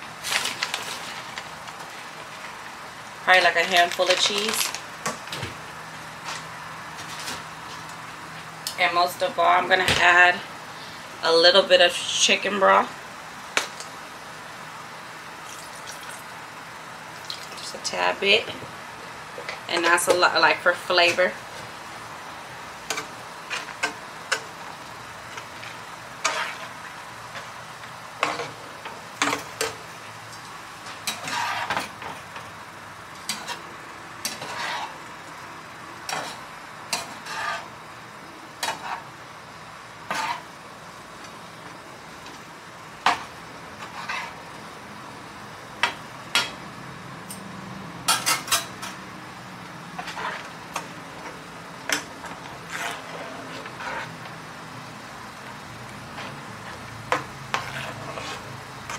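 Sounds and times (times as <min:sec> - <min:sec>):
sauce sizzling: 0:13.2 - 0:17.8
metal spoon scraping a pan: 0:26.2 - 0:26.8, 0:31.0 - 0:31.9, 0:34.2 - 0:35.0, 0:36.1 - 0:37.7, 0:38.6 - 0:39.1, 0:40.1 - 0:40.5, 0:43.8 - 0:44.4, 0:50.0 - 0:50.5, 0:51.9 - 0:54.3, 0:56.1 - 0:58.9.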